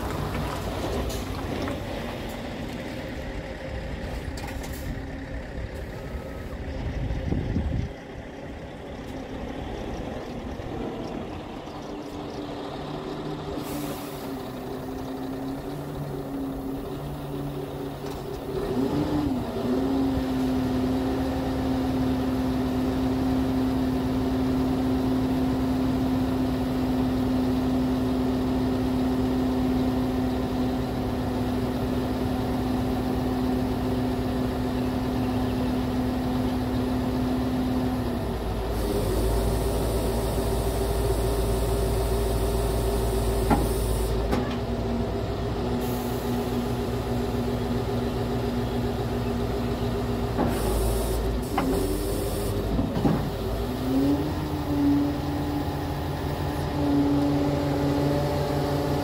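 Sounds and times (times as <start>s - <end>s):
hydraulics humming: 0.0s - 21.5s, 29.7s - 59.0s
diesel truck engine running: 0.0s - 59.0s.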